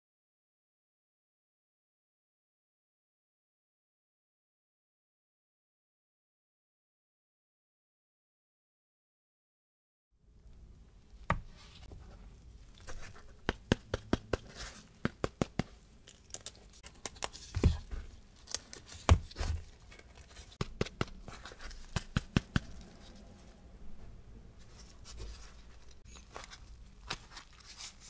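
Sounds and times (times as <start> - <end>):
crisp pastry shells crackling: 15.9 - 23.0.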